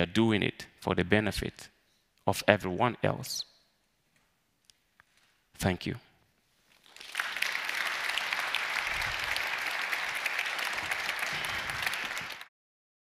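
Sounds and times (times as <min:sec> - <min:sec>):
audience applauding: 0:06.8 - 0:12.5.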